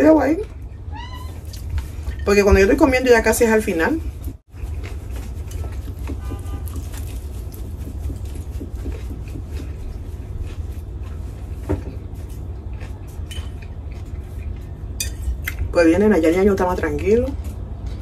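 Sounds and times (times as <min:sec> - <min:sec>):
person chewing: 0:04.3 - 0:15.7.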